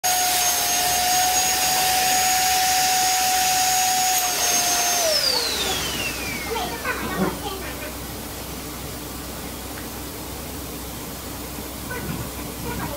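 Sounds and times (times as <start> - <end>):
electric air blower whine: 0.0 - 7.1.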